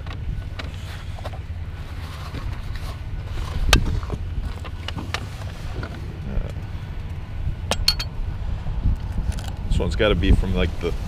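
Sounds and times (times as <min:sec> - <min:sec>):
wind buffeting microphone: 0:02.4 - 0:11.0.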